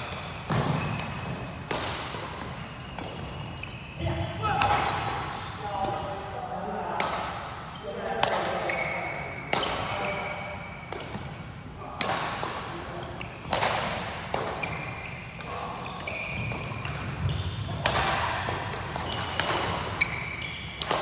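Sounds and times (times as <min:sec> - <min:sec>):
rackets hitting shuttlecock: 0:00.0 - 0:03.7, 0:04.5 - 0:06.2, 0:06.9 - 0:07.6, 0:08.2 - 0:11.4, 0:12.0 - 0:21.0
shoes squeaking on court: 0:00.0 - 0:04.3, 0:08.6 - 0:11.2, 0:14.5 - 0:21.0.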